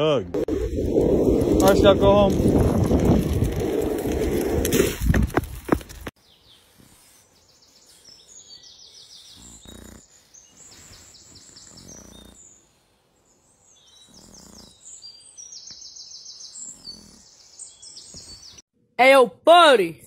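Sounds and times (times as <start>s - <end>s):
songbirds trilling and chirping: 6.2s - 18.6s.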